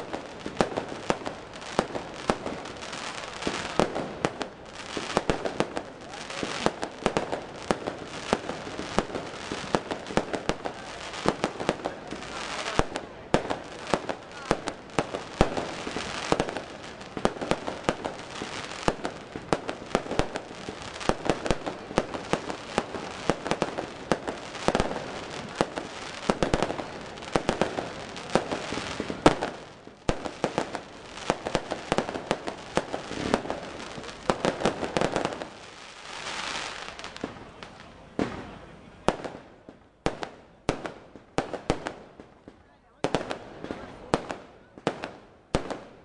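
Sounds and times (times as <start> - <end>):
heavy firework bangs: 0.0 - 35.6
sharp firework cracks: 0.0 - 46.0.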